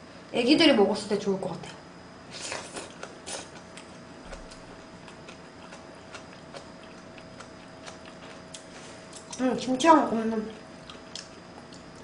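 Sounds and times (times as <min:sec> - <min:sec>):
faint steady hum: 0:00.0 - 0:12.0
mouth chewing noodles: 0:02.3 - 0:09.4, 0:10.5 - 0:12.0.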